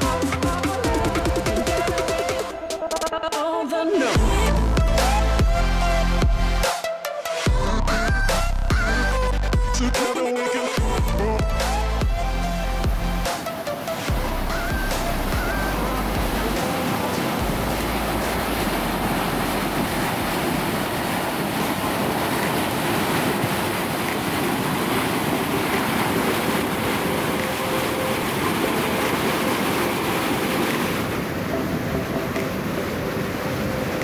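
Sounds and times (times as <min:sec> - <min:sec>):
water rushing down a canal: 0:10.8 - 0:34.0.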